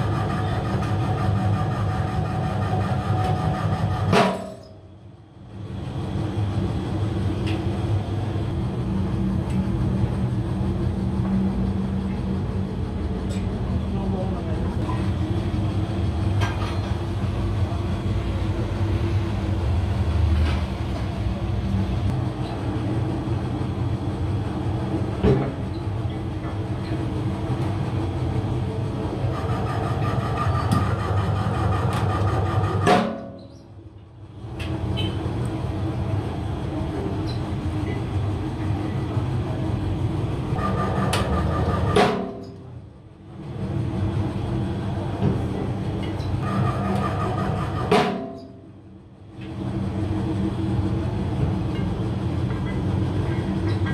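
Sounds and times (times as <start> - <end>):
metal press droning: 0.0 - 14.1, 14.7 - 53.9
sharp metallic knocks: 4.1 - 4.8, 41.2 - 42.6.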